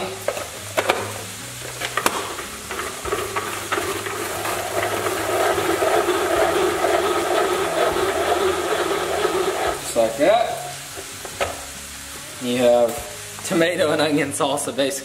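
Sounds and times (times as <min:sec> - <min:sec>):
ratcheting whir of blades: 0:02.0 - 0:10.2.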